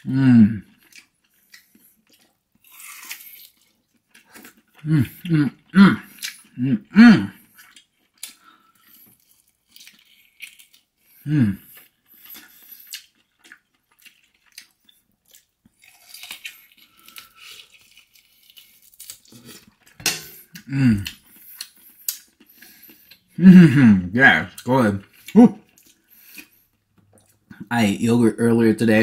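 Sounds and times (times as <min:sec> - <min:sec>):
man humming mm: 0:00.0 - 0:00.6, 0:04.8 - 0:07.4, 0:11.2 - 0:11.7, 0:20.6 - 0:21.2
man chewing food: 0:00.0 - 0:27.7.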